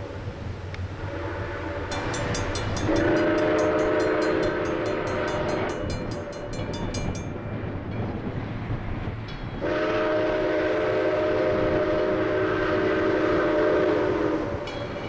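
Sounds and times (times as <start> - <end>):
steam locomotive exhaust beats: 0.0 - 15.0
steam locomotive whistle: 0.9 - 6.6, 9.6 - 15.0.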